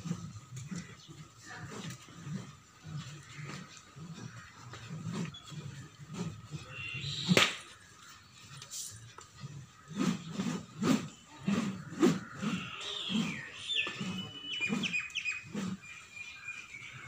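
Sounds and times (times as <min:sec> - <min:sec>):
staff swishing through air: 0:03.5 - 0:07.8, 0:09.6 - 0:15.8
sharp crack: 0:07.3 - 0:07.6.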